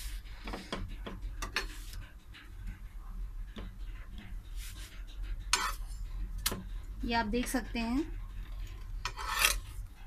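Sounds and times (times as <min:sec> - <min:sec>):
metal spatula tapping and scraping pan: 0:00.4 - 0:02.8, 0:03.5 - 0:04.4, 0:05.2 - 0:09.8.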